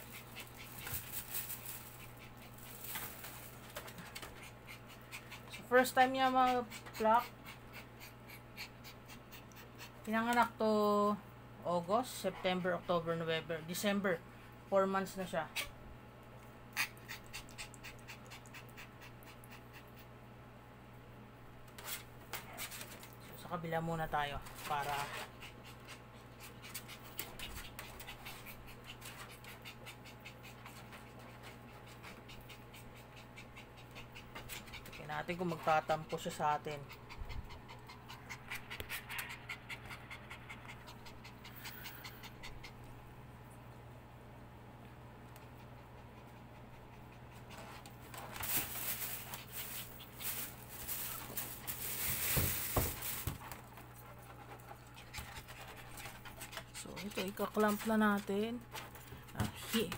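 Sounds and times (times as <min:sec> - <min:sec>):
rustling and scratching of fur: 0:00.0 - 0:07.4, 0:21.7 - 0:42.2, 0:45.3 - 0:59.9
puppy panting: 0:00.0 - 0:10.5, 0:16.7 - 0:20.2, 0:24.5 - 0:43.0, 0:45.2 - 0:59.9
steady low hum: 0:00.0 - 0:59.9.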